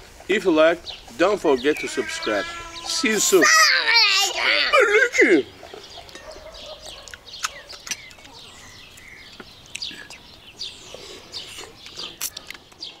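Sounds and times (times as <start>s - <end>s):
small birds chirping: 0.0s - 13.0s
sharp clicks: 7.0s - 8.4s.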